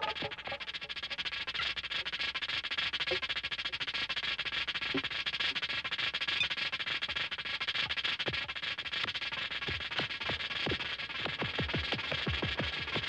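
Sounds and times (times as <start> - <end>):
electronic music: 0.0 - 1.0
dense steady hiss: 0.0 - 13.0.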